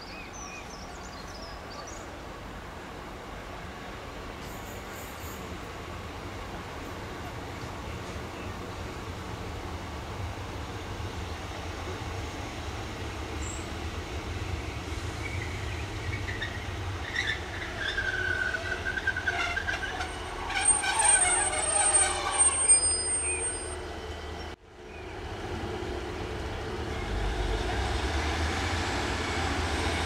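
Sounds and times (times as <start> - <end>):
train engine and rail rumble: 0.0 - 30.0
squealing wheels: 15.2 - 24.6.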